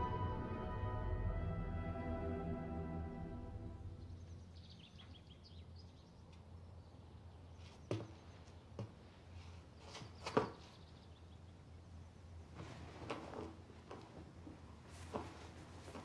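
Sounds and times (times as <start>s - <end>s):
steady low hum: 0.0s - 7.6s.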